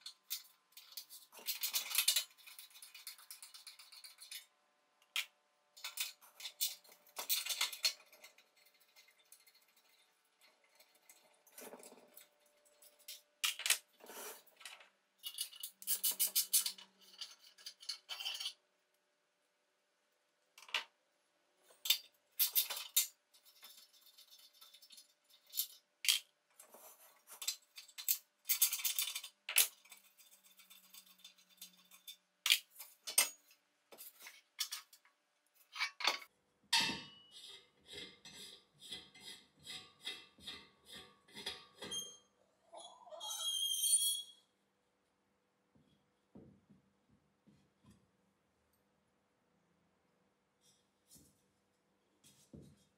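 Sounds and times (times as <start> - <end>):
metal clinks and scrapes: 15.2 - 18.6, 26.6 - 35.0.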